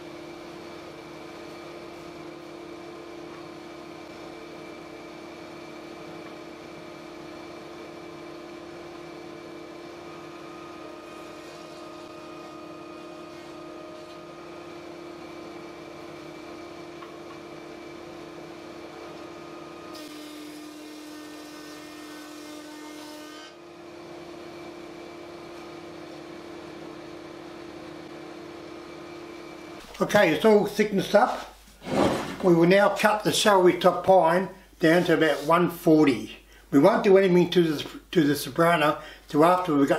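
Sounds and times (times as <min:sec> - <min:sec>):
thickness planer humming: 0:00.0 - 0:32.6
planer cutting board: 0:09.7 - 0:14.7, 0:19.0 - 0:23.6, 0:31.1 - 0:32.5.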